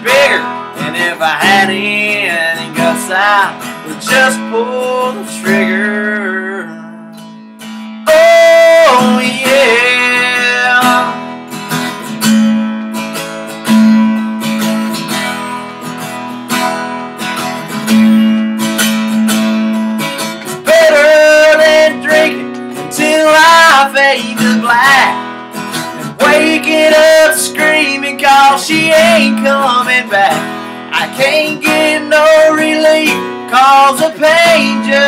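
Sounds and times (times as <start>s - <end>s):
man singing: 0.0s - 7.0s, 8.0s - 11.4s, 20.5s - 35.0s
acoustic guitar strumming: 0.0s - 35.0s.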